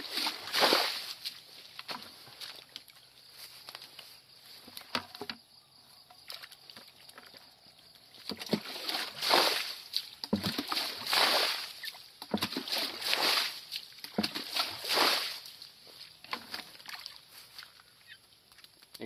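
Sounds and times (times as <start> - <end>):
water pouring through net onto grass: 0.0 - 3.0, 8.2 - 17.8.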